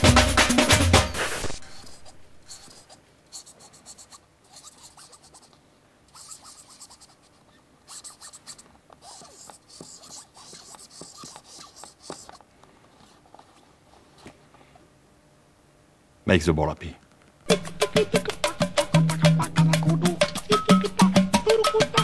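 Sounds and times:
pen scratching on ball: 0:01.2 - 0:13.6.

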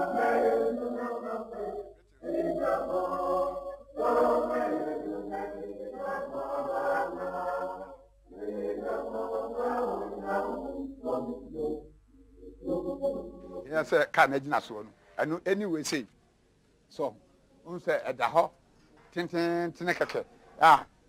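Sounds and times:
choir singing: 0:00.0 - 0:14.3.

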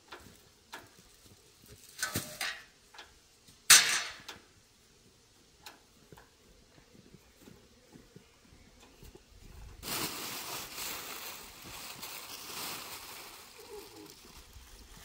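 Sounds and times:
plastic film rustling and crinkling: 0:09.8 - 0:15.0.

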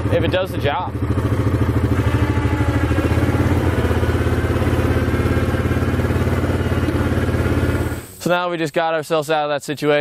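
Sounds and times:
quad engine running: 0:00.0 - 0:08.2
electric winch winding: 0:01.9 - 0:08.1.

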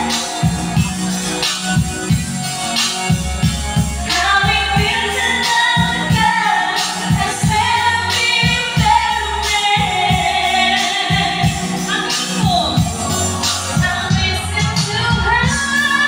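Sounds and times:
backing music with steady beat: 0:00.0 - 0:16.0
women singing into microphones: 0:04.1 - 0:16.0.

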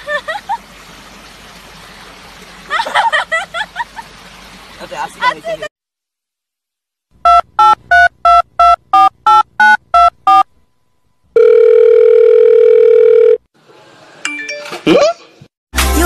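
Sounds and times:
telephone keypad beeps: 0:07.3 - 0:10.4
steady telephone tone: 0:11.4 - 0:13.4.

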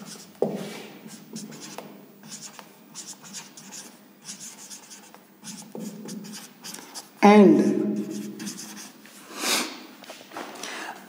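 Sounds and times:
marker writing on whiteboard: 0:00.0 - 0:07.2, 0:08.0 - 0:09.0.

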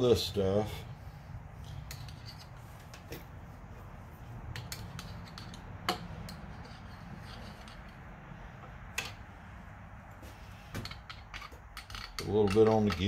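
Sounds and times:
low steady hum: 0:00.0 - 0:13.0
clicks and metal taps on engine parts: 0:10.2 - 0:13.0.

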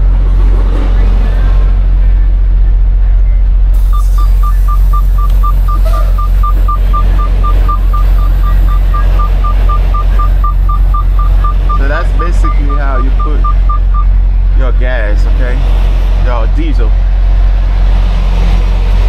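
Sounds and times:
diesel truck engine rumbling: 0:00.0 - 0:19.0
rapid electronic beeps: 0:02.2 - 0:14.2.

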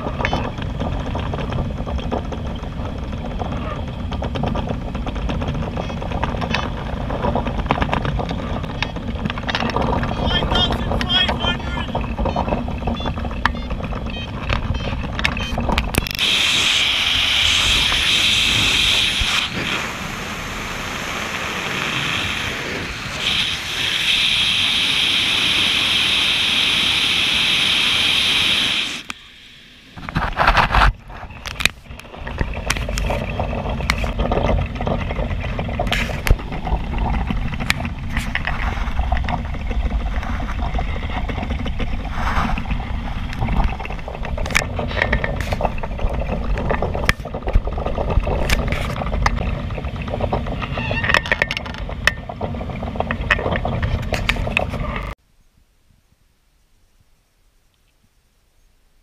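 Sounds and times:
wind buffeting microphone: 0:00.0 - 0:29.0, 0:30.0 - 0:55.2
high hiss: 0:16.2 - 0:30.0.

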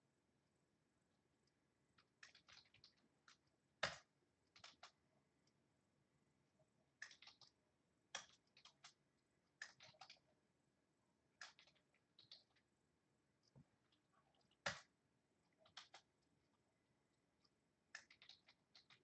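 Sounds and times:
faint keyboard typing: 0:01.4 - 0:05.6, 0:07.0 - 0:10.4, 0:11.4 - 0:12.7, 0:13.4 - 0:14.9, 0:15.5 - 0:16.4, 0:17.4 - 0:19.0.

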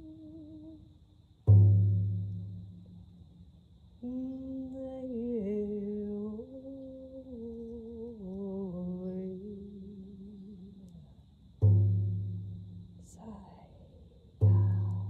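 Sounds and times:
woman singing wordless tones: 0:00.0 - 0:00.9, 0:04.0 - 0:11.5, 0:13.0 - 0:15.0.

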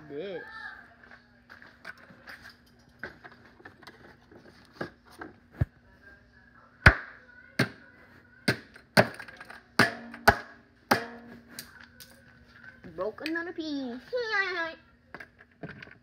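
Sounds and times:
sharp blows on circuit board pieces: 0:09.8 - 0:11.4.

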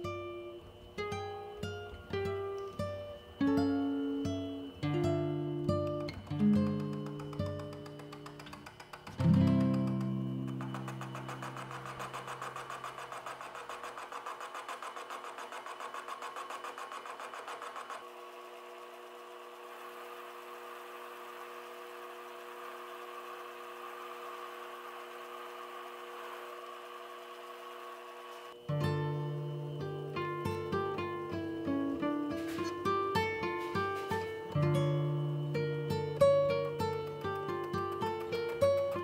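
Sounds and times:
lathe whine: 0:00.0 - 0:38.6
metal lathe cutting: 0:09.8 - 0:28.6.

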